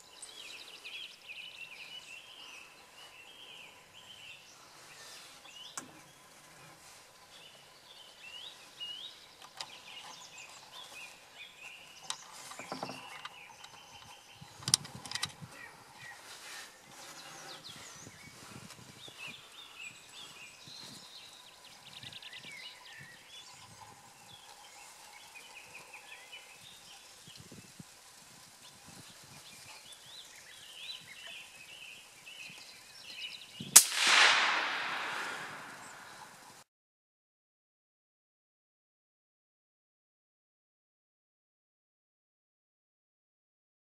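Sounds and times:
songbirds chirping faintly: 0.0 - 36.6
rifle shot with echo: 33.8 - 36.3.

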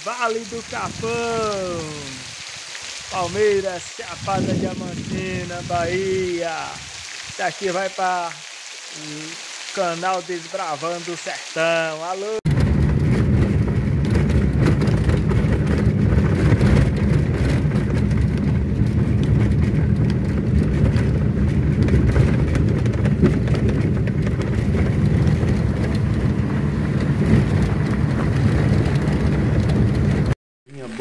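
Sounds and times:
car engine and road rumble: 12.5 - 30.4
faint ticks from rough road: 12.6 - 31.0.

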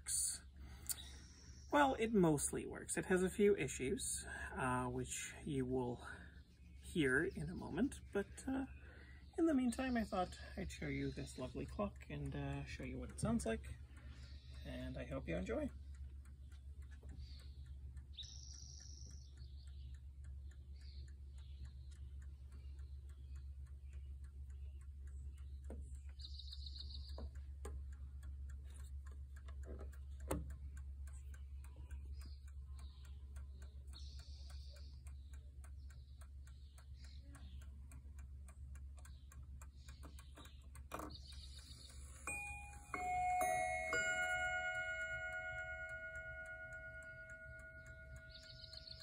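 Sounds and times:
pendulum clock ticking: 0.0 - 49.0.

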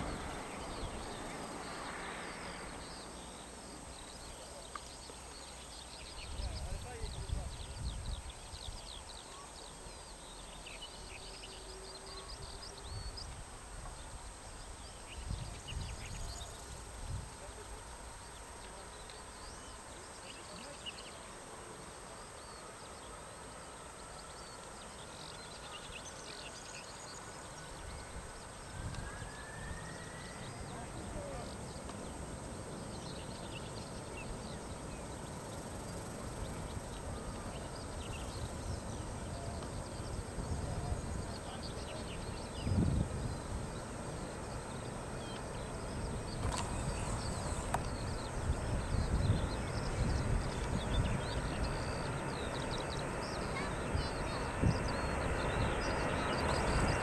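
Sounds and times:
open-air background noise: 0.0 - 57.0
small birds chirping: 0.0 - 57.0
wind on microphone: 6.2 - 9.0, 15.0 - 17.5, 27.8 - 57.0
distant jet engines whining: 27.2 - 57.0.

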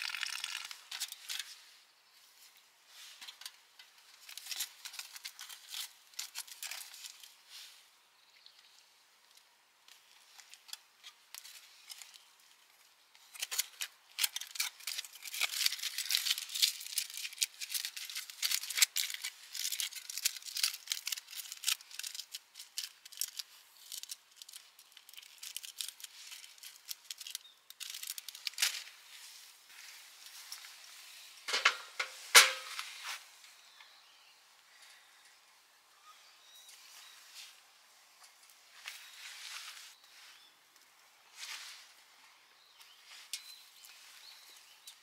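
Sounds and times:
crinkling and clicking of objects: 0.0 - 1.7, 2.3 - 7.5, 8.4 - 34.0, 42.8 - 45.0.

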